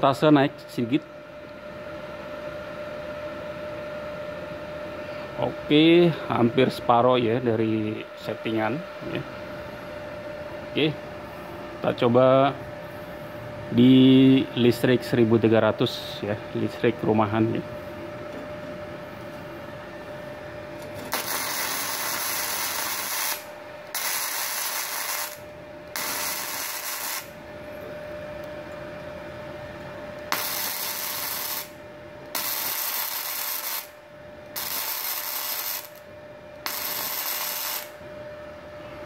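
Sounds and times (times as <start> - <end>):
welding arc sizzling: 20.7 - 27.4, 30.2 - 38.0.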